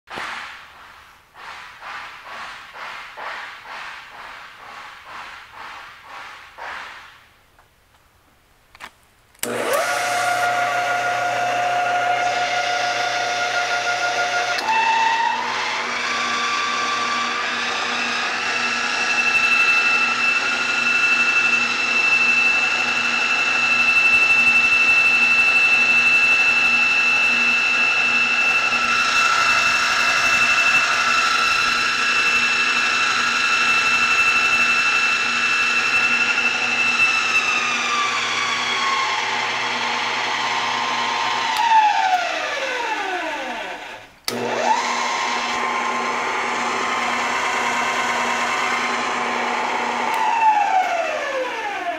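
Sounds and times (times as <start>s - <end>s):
drill press whining: 9.4s - 51.9s.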